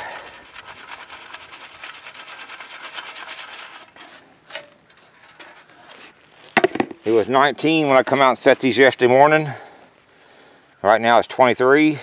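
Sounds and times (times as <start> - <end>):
soil rasping through wire screen: 0.0 - 8.9
hand rustling dirt: 0.0 - 10.8.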